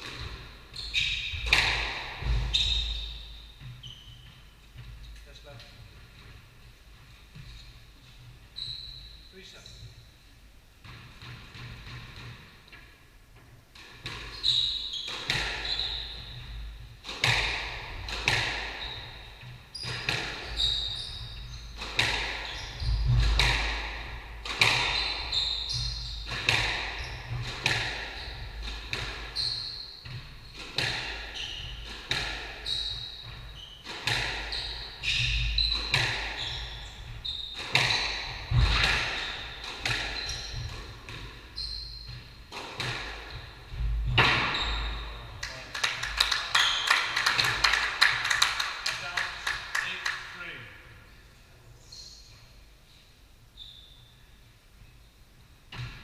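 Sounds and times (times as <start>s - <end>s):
squash ball hitting rackets and walls: 0.0s - 6.5s, 10.8s - 50.0s, 55.7s - 56.0s
trainers squeaking on wooden floor: 0.7s - 6.4s, 14.2s - 17.5s, 18.2s - 23.6s, 24.5s - 50.2s.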